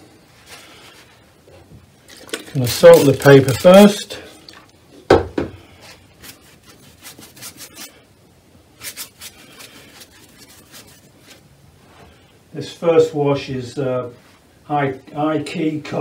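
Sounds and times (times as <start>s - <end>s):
paintbrush scrubbing on paper: 2.5s - 4.3s, 5.8s - 8.0s, 8.8s - 12.0s.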